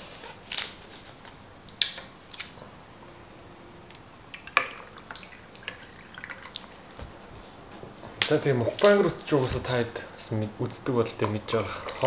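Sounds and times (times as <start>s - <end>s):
liquid pouring over ice: 4.3s - 6.8s.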